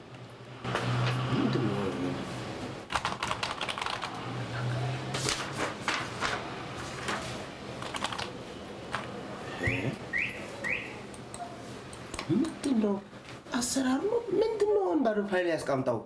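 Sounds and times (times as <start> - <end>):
keyboard typing: 2.9 - 4.2, 7.8 - 9.8.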